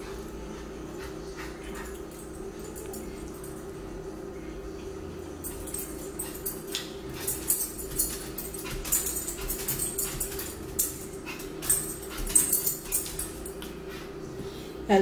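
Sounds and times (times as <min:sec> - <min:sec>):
light jingling and clinking: 0:01.6 - 0:03.8, 0:05.2 - 0:13.7.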